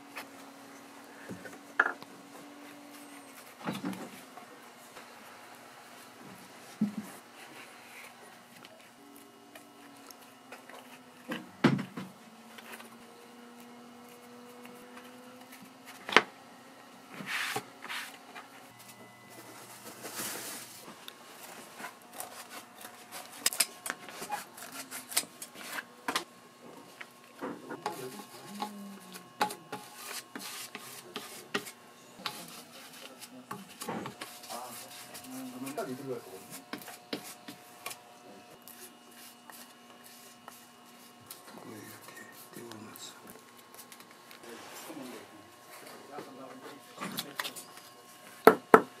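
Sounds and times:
rubbing and scraping on materials: 17.1 - 25.9, 27.5 - 48.4
taps and knocks: 48.4 - 48.9.

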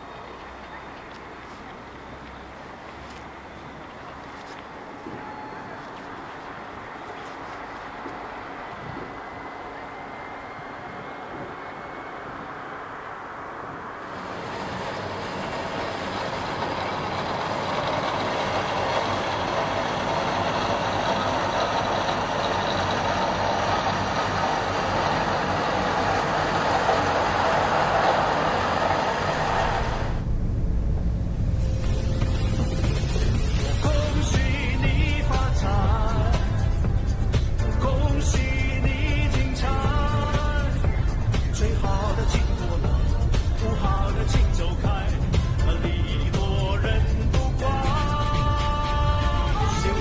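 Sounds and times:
street cleaning truck rushing noise: 0.0 - 30.3.

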